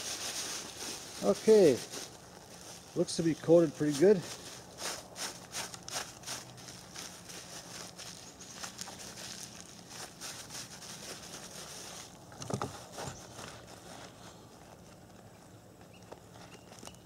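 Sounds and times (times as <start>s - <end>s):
plastic bag crinkling: 0.0s - 12.3s.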